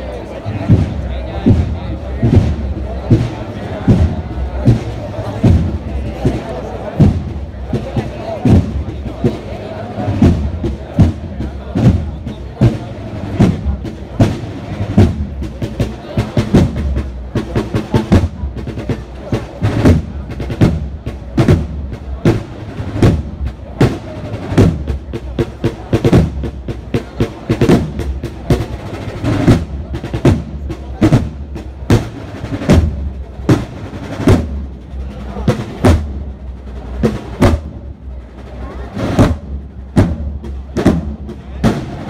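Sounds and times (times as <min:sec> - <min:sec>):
heavy drum strokes: 0:00.0 - 0:42.0
snare drum rolls: 0:00.6 - 0:42.0.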